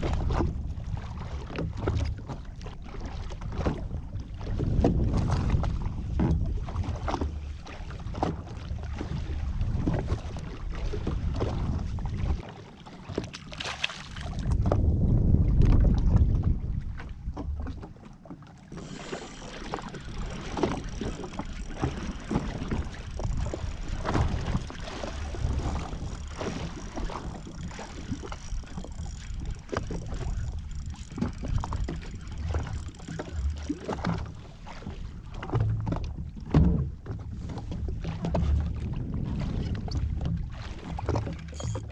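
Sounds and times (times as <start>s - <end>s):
wind buffeting microphone: 0.0s - 12.4s, 14.2s - 18.0s, 18.7s - 41.4s
water lapping against hull: 0.0s - 41.9s.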